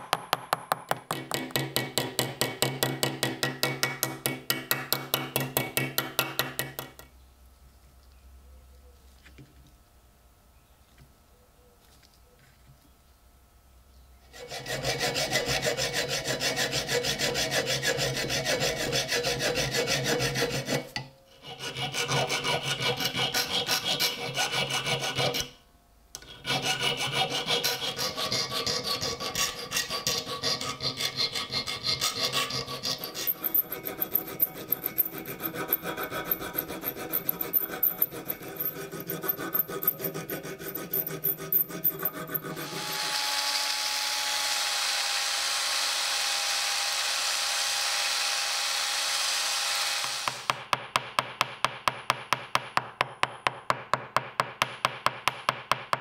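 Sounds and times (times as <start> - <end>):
metal file rasping on metal: 14.3 - 25.6, 26.2 - 43.2.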